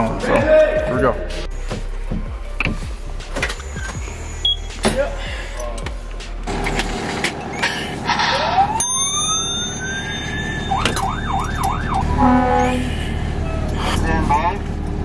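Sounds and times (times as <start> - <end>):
electronic alarm sliding tone and warble: 8.3 - 12.9
short alarm beeps: 9.0 - 12.2.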